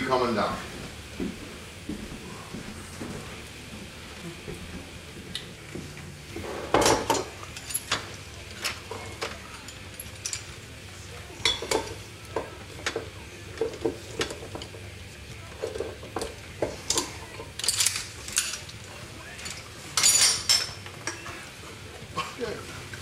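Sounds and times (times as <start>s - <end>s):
kitchen utensils clinking: 6.3s - 23.0s.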